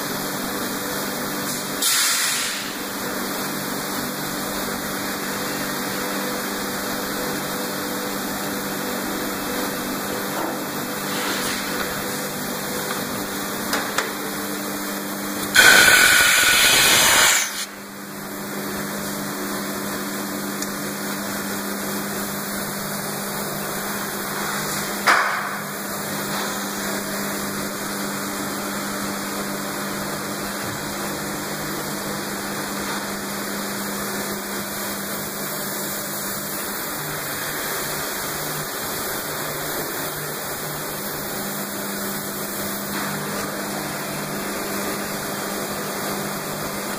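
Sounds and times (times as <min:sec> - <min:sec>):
sharp air blast: 0:01.8 - 0:02.7, 0:15.4 - 0:17.8
machine humming: 0:12.0 - 0:18.1
compressed air rushing: 0:15.5 - 0:17.7.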